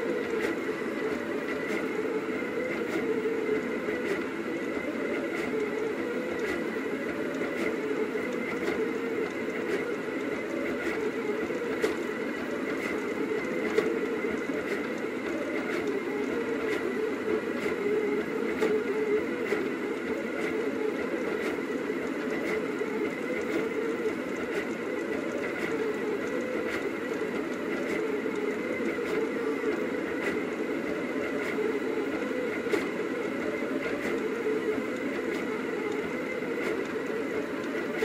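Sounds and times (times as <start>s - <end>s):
stepper motors whining: 0.0s - 38.0s.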